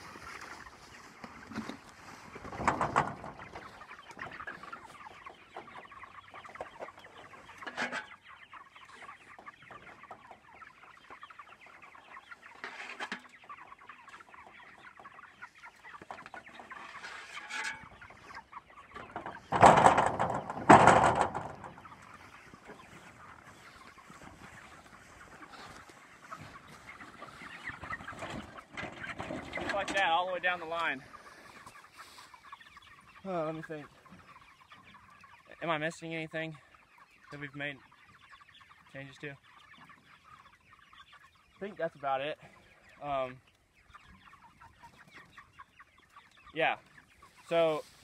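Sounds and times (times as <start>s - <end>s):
chickens clucking and cheeping: 0.0s - 48.0s
loud clatters: 19.5s - 21.6s.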